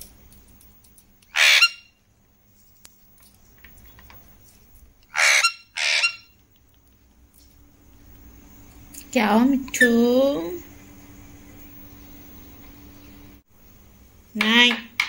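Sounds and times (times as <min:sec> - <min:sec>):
parakeet screeching: 0:01.3 - 0:01.9, 0:05.1 - 0:06.4.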